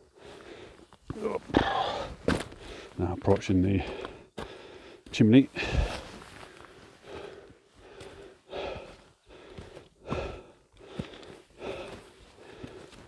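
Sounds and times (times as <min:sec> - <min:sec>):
person breathing hard: 0:00.0 - 0:00.9, 0:01.5 - 0:03.0, 0:03.8 - 0:13.0
light footfalls on rock: 0:00.9 - 0:06.1, 0:09.3 - 0:13.0.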